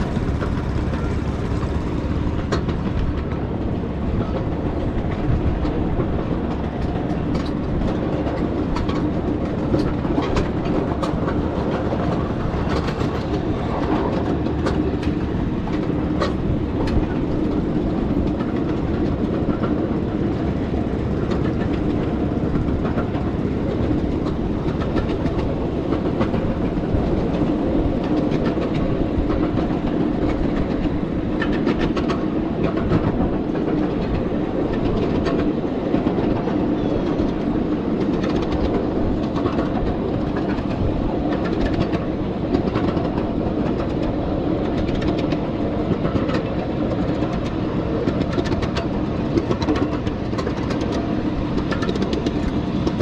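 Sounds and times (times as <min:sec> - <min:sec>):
miniature train rumbling: 0:00.0 - 0:53.0
wheels clicking over rail joints: 0:00.0 - 0:53.0.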